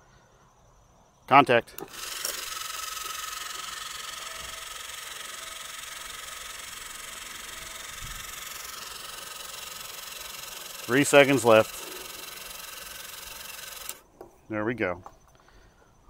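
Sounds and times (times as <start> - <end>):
faint high whine: 0.0 - 16.0
pump spray hissing: 1.8 - 14.0.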